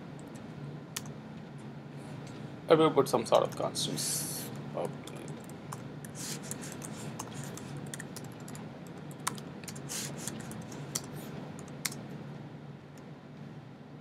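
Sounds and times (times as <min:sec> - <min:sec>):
faint low hum: 0:00.0 - 0:14.0
keyboard typing: 0:05.1 - 0:12.0.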